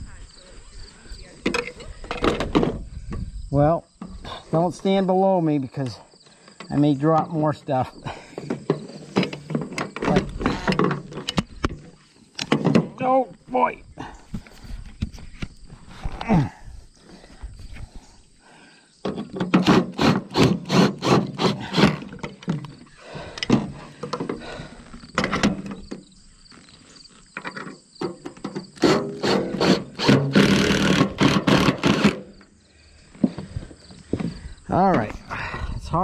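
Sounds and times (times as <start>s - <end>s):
impact driver hammering: 28.8s - 32.3s.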